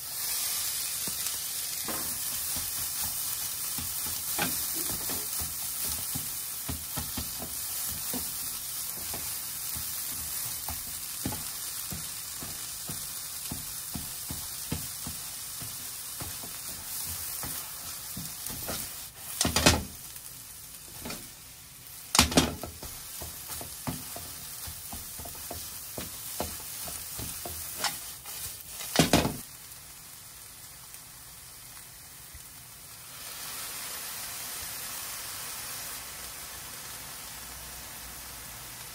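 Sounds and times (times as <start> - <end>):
food sizzling in a frying pan: 0.0 - 38.9
spatula and pan clattering: 1.8 - 20.0, 20.9 - 21.4, 22.1 - 29.4
spatula scraping and clicking: 22.4 - 29.0.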